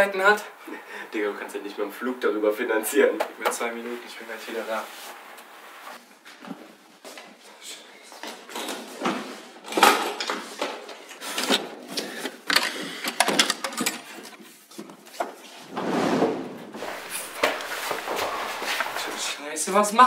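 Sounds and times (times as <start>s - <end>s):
rustling of rummaged items: 8.1s - 15.7s, 16.8s - 19.4s
wooden drawers opening and shutting: 8.6s - 14.4s, 15.7s - 19.3s.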